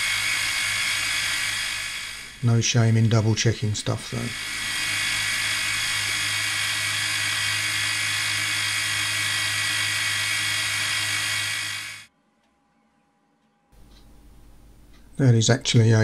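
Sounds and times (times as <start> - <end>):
milling machine hum and whine: 0.0 - 12.1.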